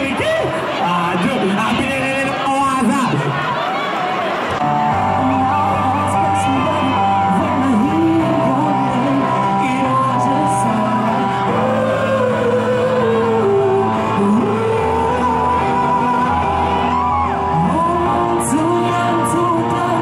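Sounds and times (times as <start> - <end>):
instrumental music with bass: 4.6 - 20.0
man singing into a microphone: 4.6 - 20.0.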